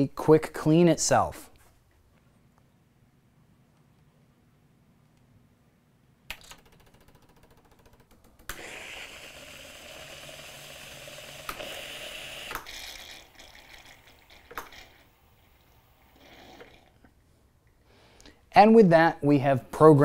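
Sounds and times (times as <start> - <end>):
pump pulsing: 8.5 - 14.9
steam hissing: 8.5 - 16.8.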